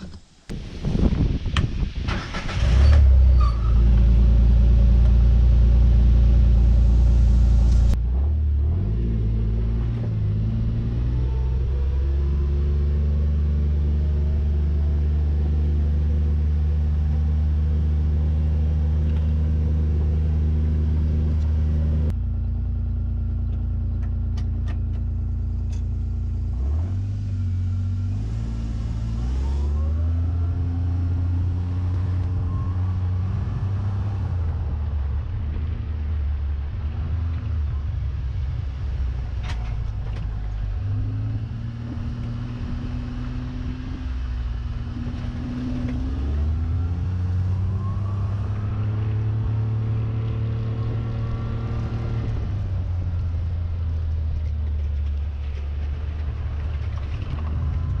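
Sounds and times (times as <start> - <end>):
utility vehicle driving on dirt: 0.0 - 58.0
utility vehicle engine starting: 1.9 - 8.2.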